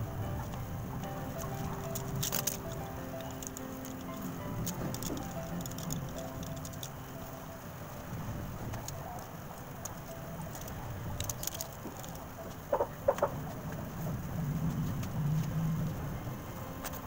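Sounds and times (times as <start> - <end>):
chicken clucking: 12.4 - 13.6.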